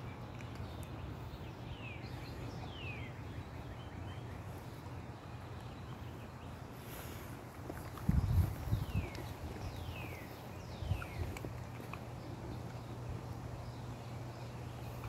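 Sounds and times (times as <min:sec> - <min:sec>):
wind buffeting microphone: 0:07.5 - 0:13.2.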